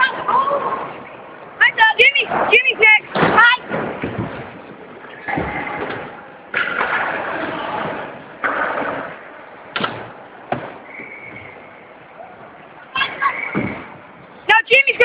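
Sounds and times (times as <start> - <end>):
skateboard wheels rolling: 0.0 - 14.4
skateboard slamming and clacking: 5.3 - 11.2.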